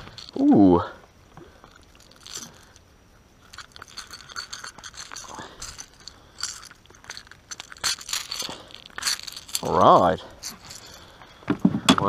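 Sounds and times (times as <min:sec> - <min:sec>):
crackling scrapes and clicks of hands: 0:01.6 - 0:02.8, 0:03.4 - 0:11.3.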